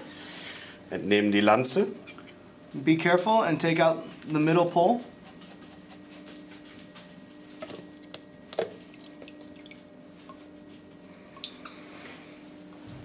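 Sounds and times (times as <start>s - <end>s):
water dripping: 8.6s - 9.9s, 10.8s - 11.7s.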